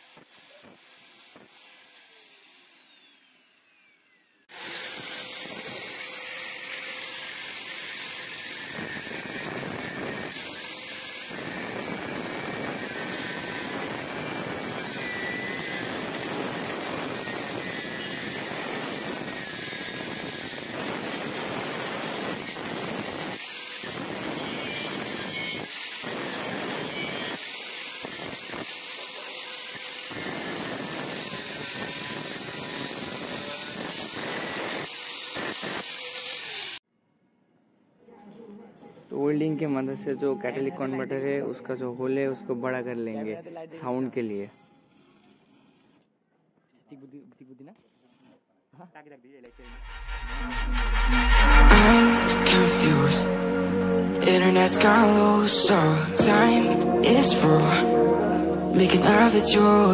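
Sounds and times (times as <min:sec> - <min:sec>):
angle grinder cutting metal: 0:00.0 - 0:36.8, 0:49.6 - 0:59.9.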